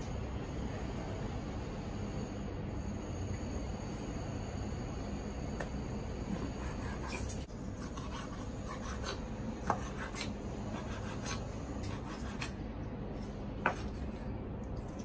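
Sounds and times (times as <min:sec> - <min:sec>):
knife rasping through onion: 0:06.3 - 0:12.6.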